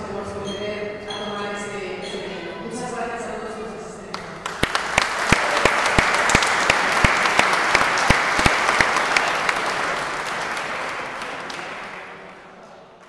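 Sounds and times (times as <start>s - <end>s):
audience applauding: 4.1s - 13.0s
sharp single claps: 4.2s - 12.0s.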